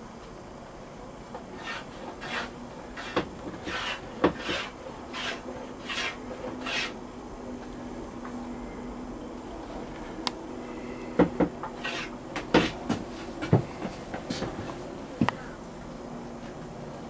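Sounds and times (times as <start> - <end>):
hand tool rasping on wood: 1.6 - 7.0, 11.8 - 12.8.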